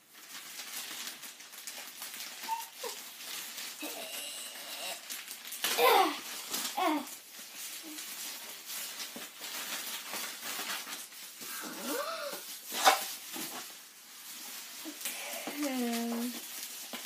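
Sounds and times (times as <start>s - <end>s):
plastic wrapping crinkling: 0.0s - 17.0s
short vocal sound: 11.4s - 12.4s.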